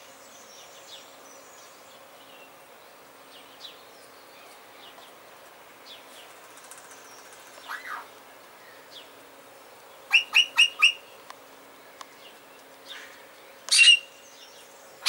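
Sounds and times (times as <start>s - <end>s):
bird calling: 6.8s - 9.1s, 10.0s - 11.2s, 11.8s - 14.7s.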